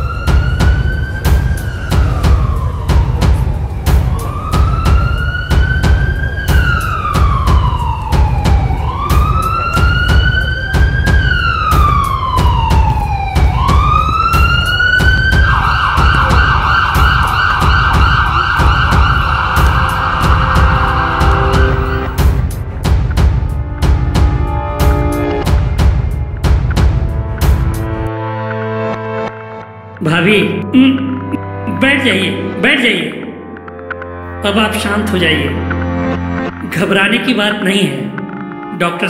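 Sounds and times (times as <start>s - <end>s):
emergency vehicle siren: 0.0s - 26.2s
low pulsing background track: 0.0s - 39.0s.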